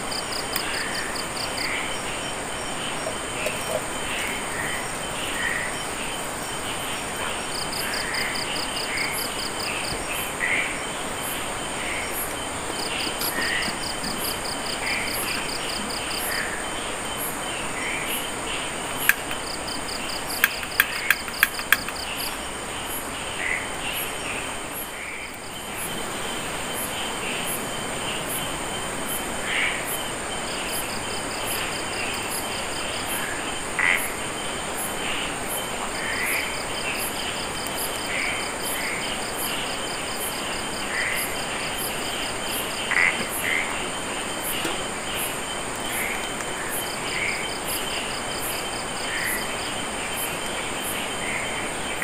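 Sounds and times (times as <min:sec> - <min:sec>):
cricket chirping: 0:00.0 - 0:52.0
sharp clicks: 0:20.3 - 0:22.3.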